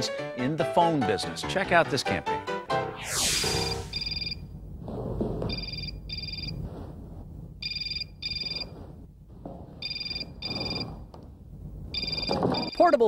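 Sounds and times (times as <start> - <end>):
mobile phone ringing: 3.9 - 4.4, 5.5 - 6.5, 7.6 - 8.7, 9.8 - 10.9, 12.0 - 13.0.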